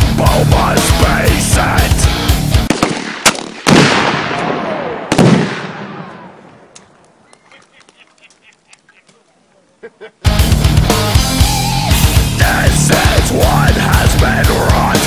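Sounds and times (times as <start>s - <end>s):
sharp explosive crack: 2.5s - 6.8s.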